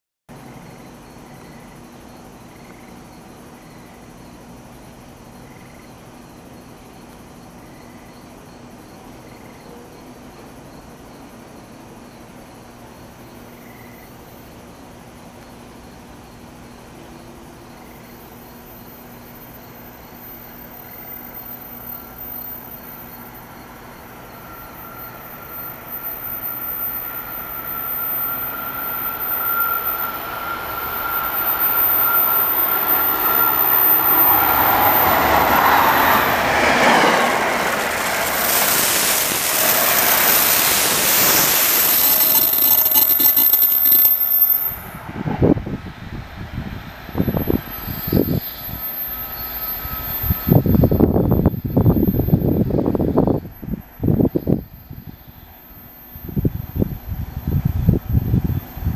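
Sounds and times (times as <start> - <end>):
train wheels rushing on rail: 12.6 - 58.9
train high tone: 16.6 - 58.9.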